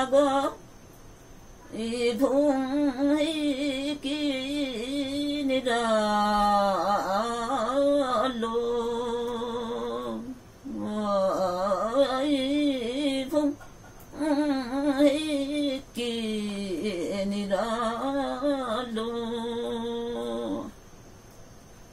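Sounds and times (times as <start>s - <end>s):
woman singing unaccompanied: 0.0s - 0.8s, 1.5s - 20.9s.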